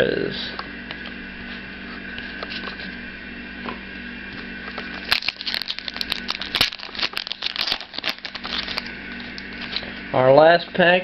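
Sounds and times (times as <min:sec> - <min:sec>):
steady background hum: 0:00.0 - 0:11.0
foil wrapper crinkling: 0:04.8 - 0:09.9.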